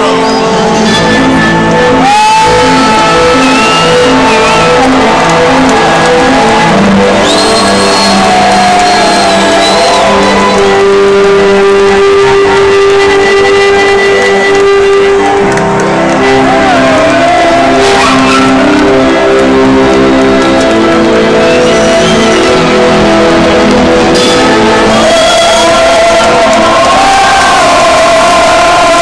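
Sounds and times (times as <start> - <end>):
loud live concert music: 0.0 - 29.0.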